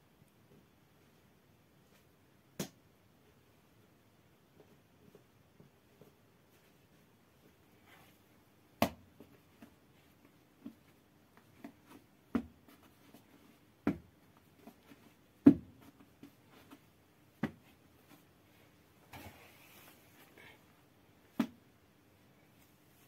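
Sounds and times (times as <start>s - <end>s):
small pats on dough: 8.7s - 18.3s
dough slapping on cloth: 8.8s - 9.8s, 10.6s - 18.2s.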